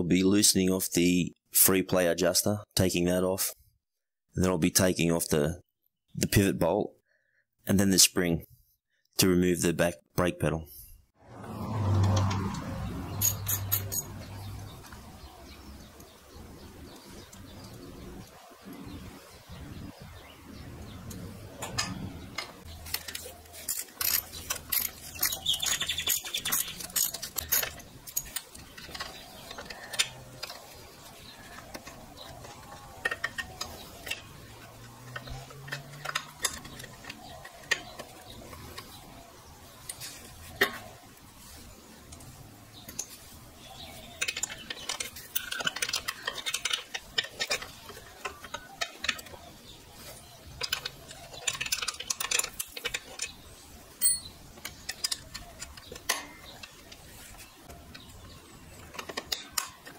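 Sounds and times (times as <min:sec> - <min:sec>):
wrench clinking and scraping: 0:12.0 - 0:14.5, 0:21.6 - 0:38.9, 0:44.1 - 0:49.4, 0:50.1 - 0:59.9.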